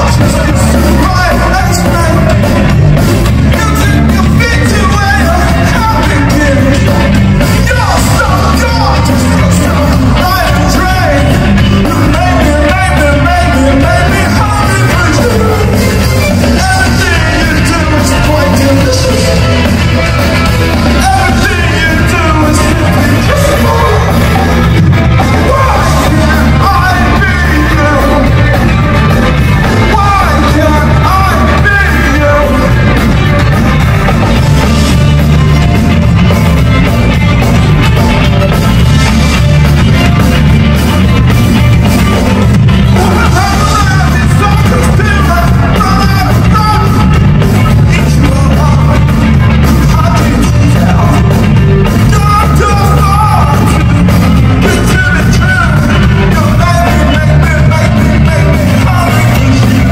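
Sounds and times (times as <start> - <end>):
live rock band playing: 0.0 - 59.9
lead vocals singing: 3.3 - 33.6, 54.5 - 59.9.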